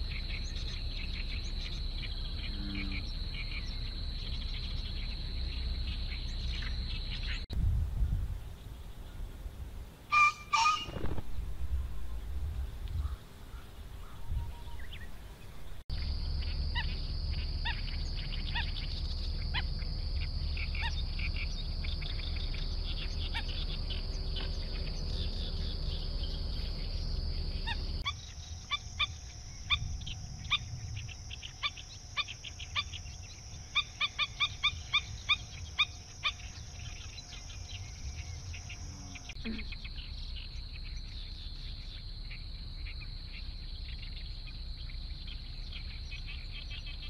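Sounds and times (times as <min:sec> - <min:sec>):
short sharp bird calls: 0:10.1 - 0:11.2.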